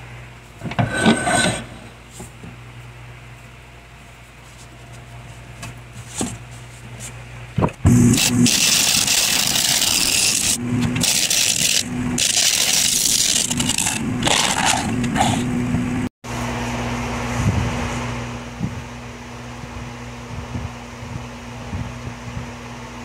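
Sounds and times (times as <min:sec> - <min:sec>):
electric hum: 0:00.0 - 0:23.0.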